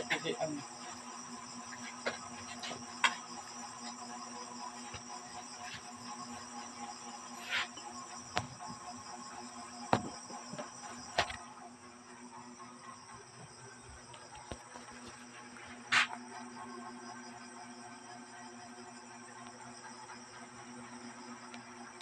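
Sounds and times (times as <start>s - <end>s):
crickets chirring: 0.0s - 22.0s
sharp knocks and taps: 9.9s - 11.4s.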